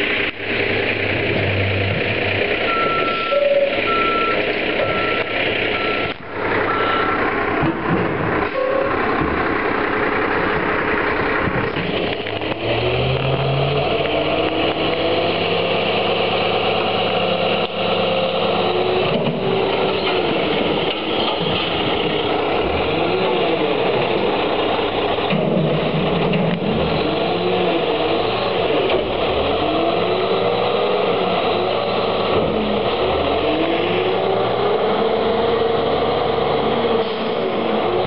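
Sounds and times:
truck engine revving: 0.0 - 38.0
truck reversing alarm beeps: 2.7 - 7.2, 8.5 - 9.0.

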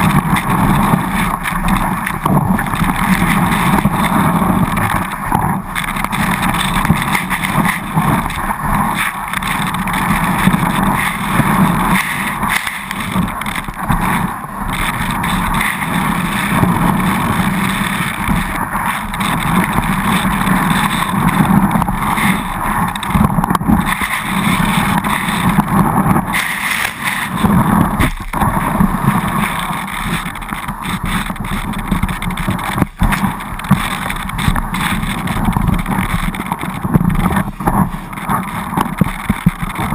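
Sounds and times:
skis scraping over snow: 0.0 - 39.9
wind rushing over camera: 0.0 - 39.9.

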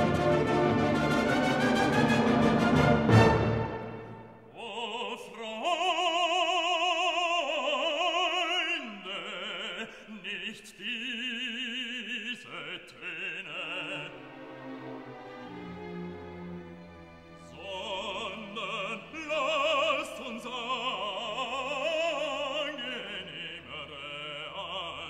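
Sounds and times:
orchestral chord: 0.0 - 4.4
opera singer with vibrato: 4.5 - 14.4, 17.5 - 25.0.

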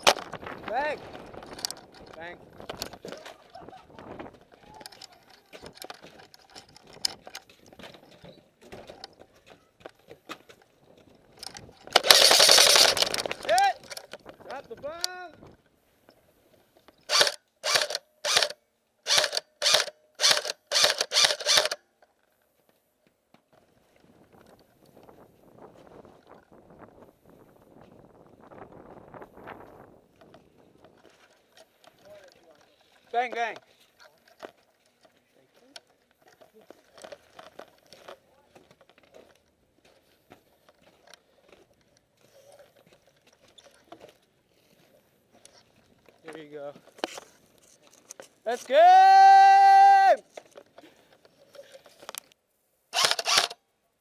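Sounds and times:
airsoft rifle shots: 11.9 - 13.4, 17.1 - 21.8.

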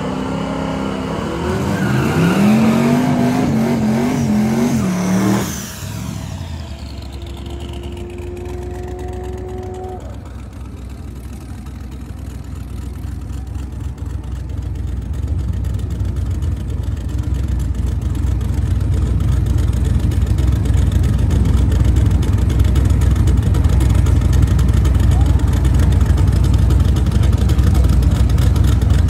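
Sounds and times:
car engine rumbling at low revs: 0.0 - 29.0.

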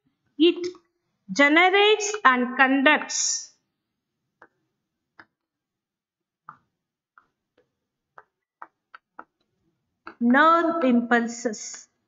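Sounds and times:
chalk tapping on chalkboard: 6.5 - 9.4.

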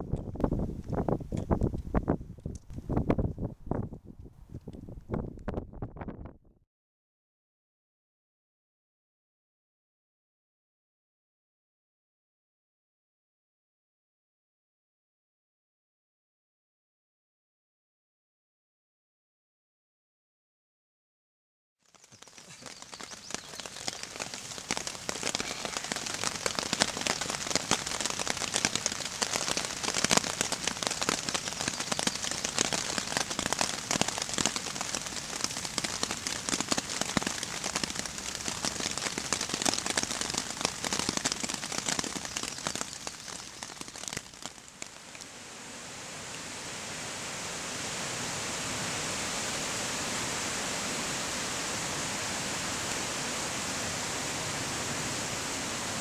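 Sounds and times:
rain pattering on a tarp: 21.8 - 56.0.

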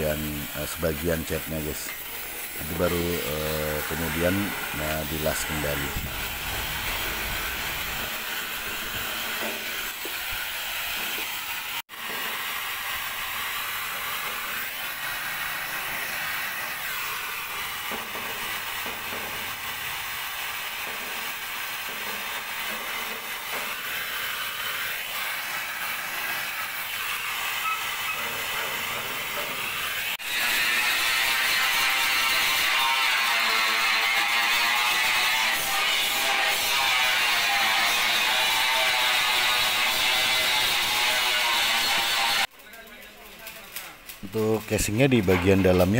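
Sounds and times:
gas torch hissing: 0.0 - 37.4.

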